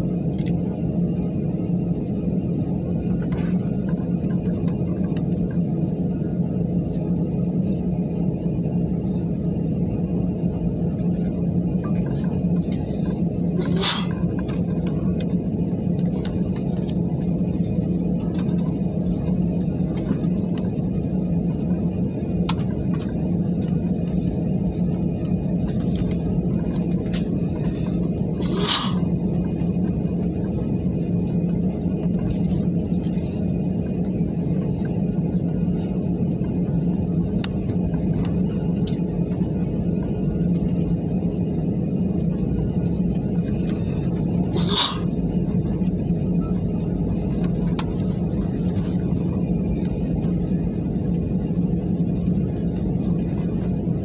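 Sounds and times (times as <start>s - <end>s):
airliner engines rumbling: 0.0s - 54.0s
short hisses: 28.4s - 29.0s, 44.6s - 45.1s.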